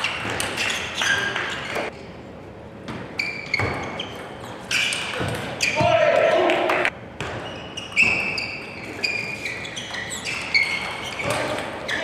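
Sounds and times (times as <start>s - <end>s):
short high-pitched squeaks: 7.4s - 12.0s.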